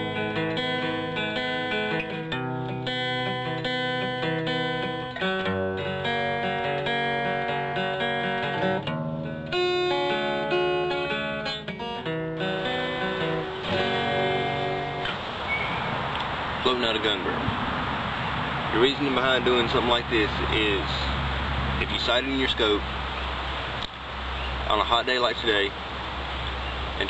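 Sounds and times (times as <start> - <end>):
plucked guitar music: 0.0 - 17.6, 18.2 - 25.7
steady hiss: 12.9 - 27.0.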